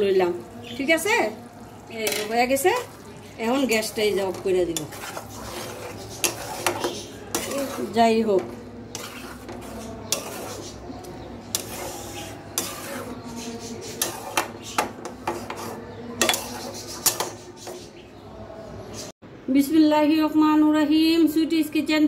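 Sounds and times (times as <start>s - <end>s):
spoon stirring in metal pot: 0.6s - 18.0s
spoon clinking against pot: 3.8s - 13.2s, 13.9s - 17.9s.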